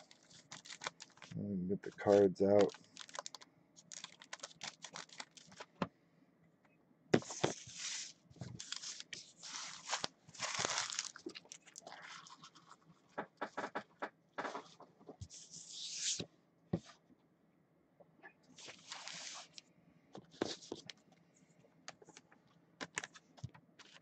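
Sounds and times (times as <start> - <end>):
card pack wrappers tearing and crinkling: 0.0 - 1.4, 2.0 - 5.8, 7.2 - 12.4, 18.6 - 19.6.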